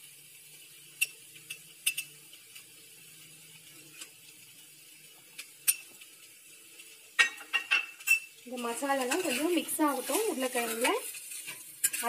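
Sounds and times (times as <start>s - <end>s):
spoon clinking against glass bowl: 7.2s - 8.3s.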